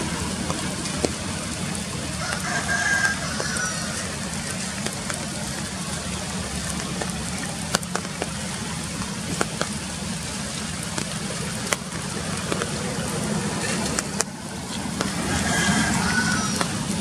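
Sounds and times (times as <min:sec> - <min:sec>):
rain on leaves: 0:00.0 - 0:17.0
drops tapping close by: 0:02.2 - 0:13.1.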